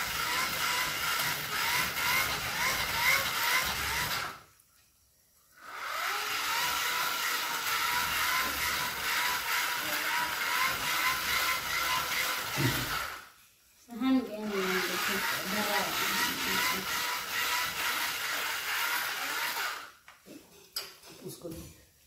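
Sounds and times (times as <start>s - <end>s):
handheld air blower whirring: 0.0s - 4.4s, 5.6s - 13.3s, 14.4s - 20.0s.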